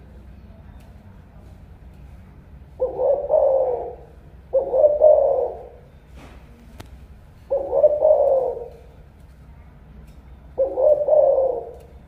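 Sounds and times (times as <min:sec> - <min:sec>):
dove cooing: 0:02.8 - 0:05.9, 0:07.4 - 0:09.0, 0:10.6 - 0:12.0.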